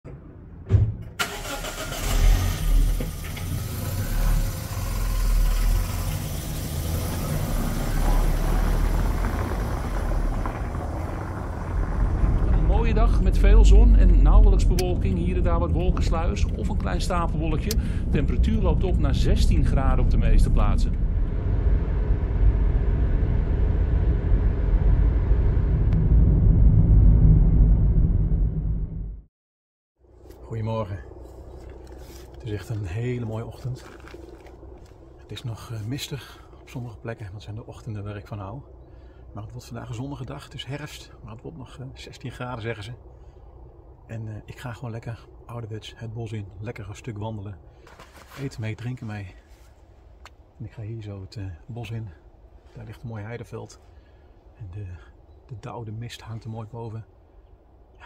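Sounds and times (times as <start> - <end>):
car engine starting and running: 0.1 - 29.3
road and engine noise in car: 1.0 - 26.0, 30.0 - 54.8.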